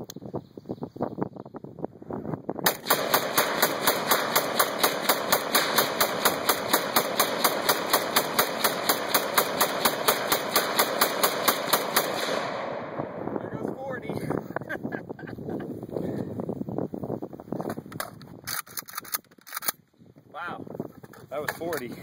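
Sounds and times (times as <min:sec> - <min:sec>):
rifle fired in rapid string: 0:02.6 - 0:13.2.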